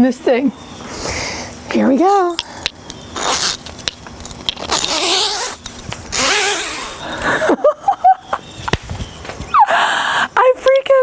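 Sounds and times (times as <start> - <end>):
zipper being pulled open: 3.1 - 7.2.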